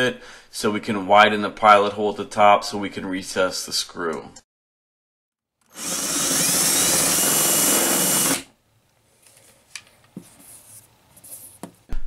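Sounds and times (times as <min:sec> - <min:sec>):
cordless drill spinning: 0:05.7 - 0:08.5.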